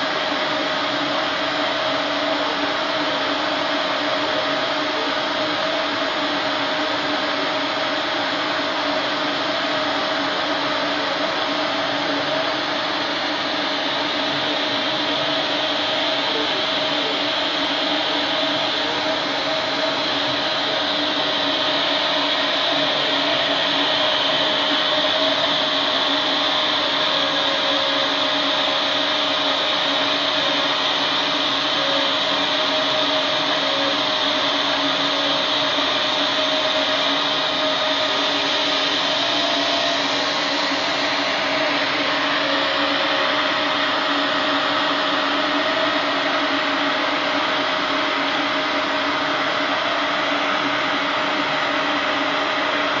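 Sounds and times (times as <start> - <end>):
laser cutter fans droning: 0.0 - 53.0
steady hums: 0.0 - 53.0.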